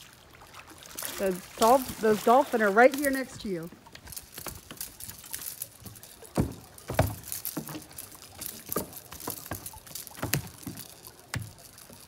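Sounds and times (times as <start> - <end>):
loud water splashes: 0.0 - 3.5
water lapping against boat hull: 0.0 - 12.0
small knocks: 3.7 - 12.0.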